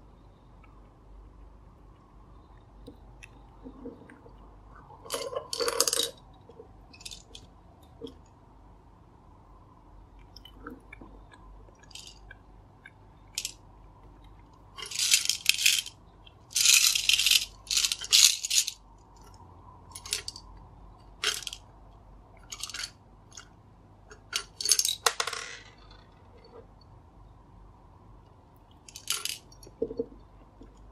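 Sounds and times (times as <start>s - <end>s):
hard candies rattling in plastic dispenser: 14.8s - 18.8s, 19.9s - 20.4s, 21.2s - 21.6s, 28.9s - 29.5s.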